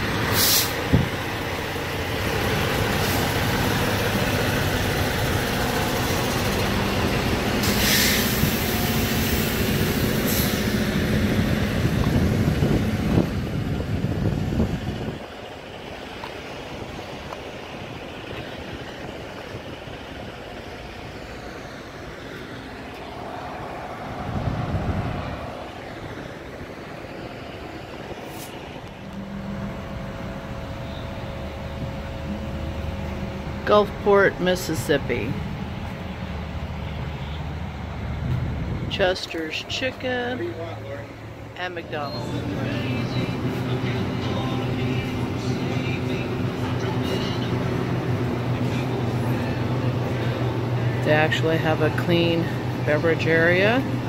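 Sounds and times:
outdoor background noise: 0.0s - 54.0s
trucks idling: 0.0s - 54.0s
short sharp air hiss: 0.3s - 0.8s, 7.6s - 9.5s.

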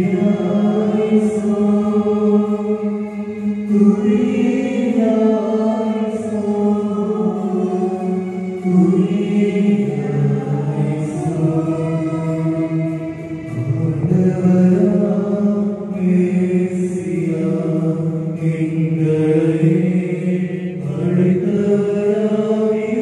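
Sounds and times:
voices singing a slow hymn: 0.0s - 23.0s.

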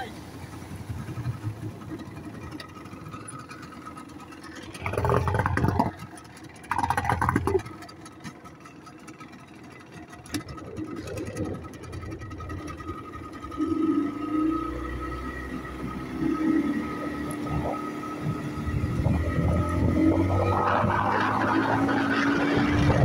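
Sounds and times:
outboard motor running: 0.0s - 23.0s
propeller whine: 0.0s - 23.0s
rushes of noise: 10.4s - 23.0s.

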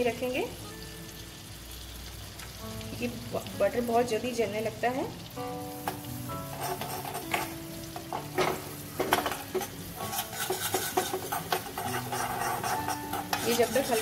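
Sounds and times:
garlic sizzling in butter: 0.0s - 14.0s
soft background music: 0.0s - 14.0s
spoon scraping a pan: 5.9s - 14.0s.

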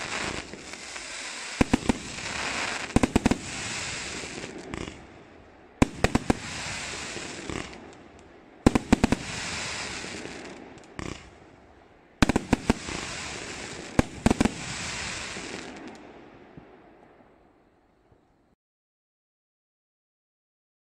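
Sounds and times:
firework bangs: 0.0s - 11.6s, 12.2s - 16.8s
firework crackling: 0.0s - 17.0s.

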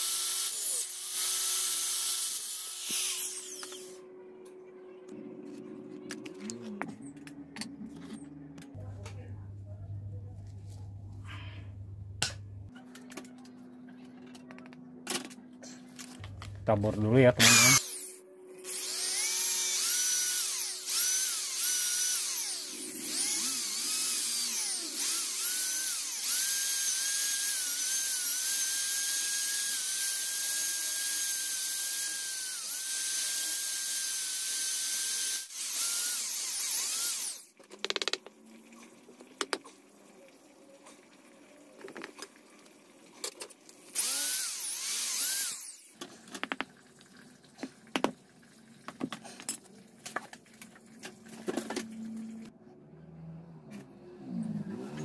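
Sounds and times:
electric drill boring wood: 0.0s - 4.0s, 17.4s - 18.1s, 18.7s - 38.2s, 43.9s - 46.0s.

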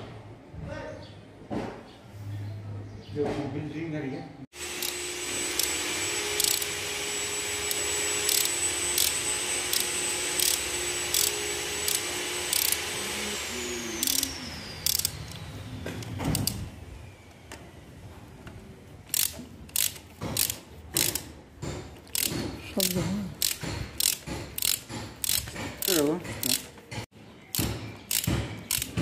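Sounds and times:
machine hum with high whine: 4.6s - 18.3s
hand ratchet clicking: 4.7s - 6.8s, 7.6s - 12.9s, 14.0s - 15.4s, 16.0s - 16.6s, 19.1s - 29.0s.

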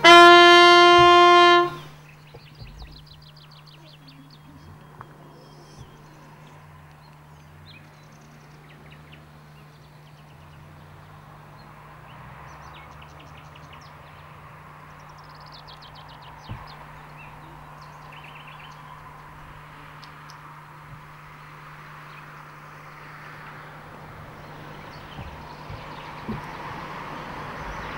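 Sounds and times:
dull thump: 0.0s - 3.2s, 16.4s - 17.1s, 22.9s - 27.9s
small birds chirping: 0.0s - 27.9s.

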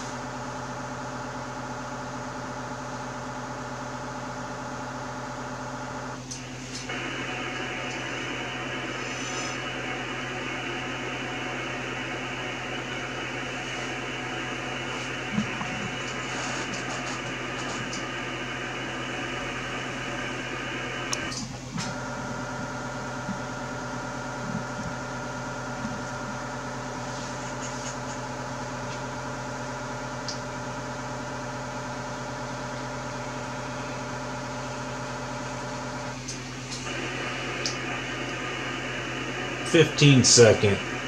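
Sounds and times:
steady electrical hum: 3.5s - 41.0s
radio receiver hiss: 6.6s - 22.0s, 36.7s - 41.0s.

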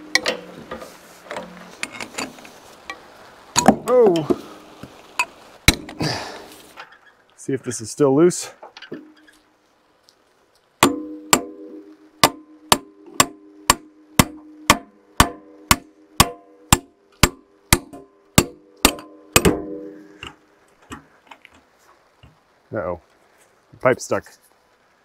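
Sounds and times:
hammer striking steel pin: 10.8s - 21.0s.

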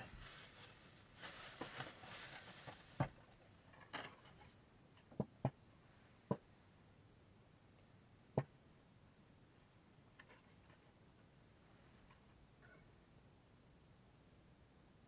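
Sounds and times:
soft rustle: 0.0s - 4.6s, 10.2s - 12.8s.

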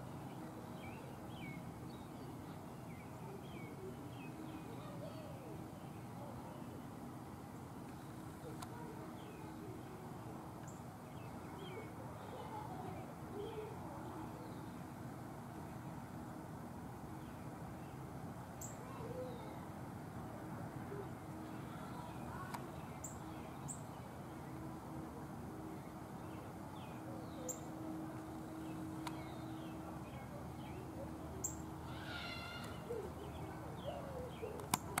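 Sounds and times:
faint low hum: 0.0s - 35.0s
steady background hiss: 0.0s - 35.0s
birds chirping and calling: 25.6s - 35.0s.

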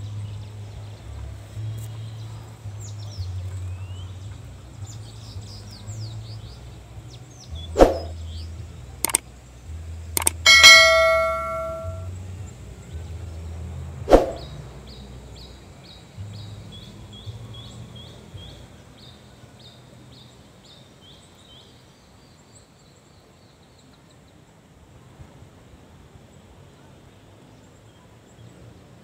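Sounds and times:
sharp knock: 10.2s - 12.0s
bell-like chime: 10.2s - 12.1s
quick high chirps: 10.2s - 12.1s.

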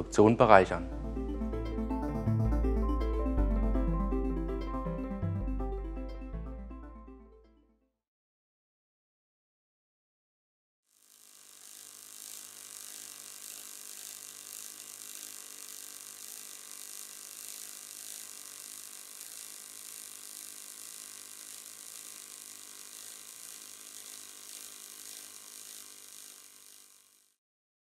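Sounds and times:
welder hum: 0.1s - 6.3s, 10.9s - 27.4s
welding arc hissing: 10.9s - 27.4s.

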